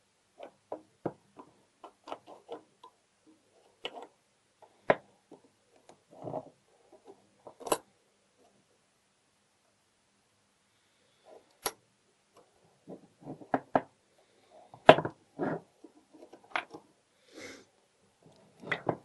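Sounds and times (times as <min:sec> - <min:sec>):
metal lock parts clicking: 0:07.5 - 0:07.8.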